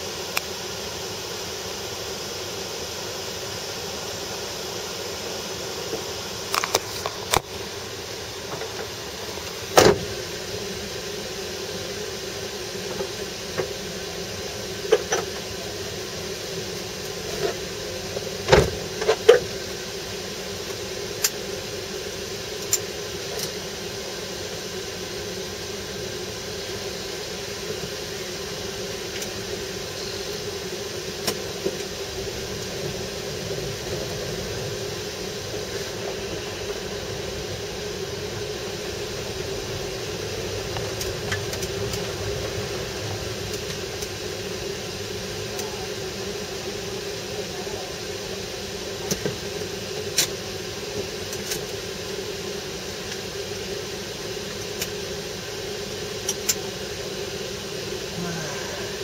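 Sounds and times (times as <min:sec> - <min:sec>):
car engine idling: 0:29.0 - 0:46.7.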